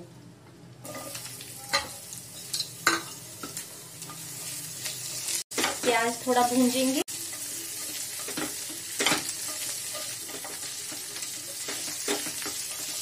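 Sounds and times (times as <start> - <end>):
onions sizzling in a pan: 0.8 - 13.0
spatula scraping a pan: 7.2 - 13.0.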